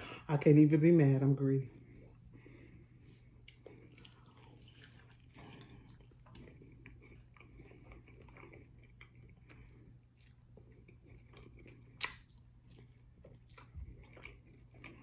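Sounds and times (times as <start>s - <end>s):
crunchy chewing: 3.3s - 15.0s.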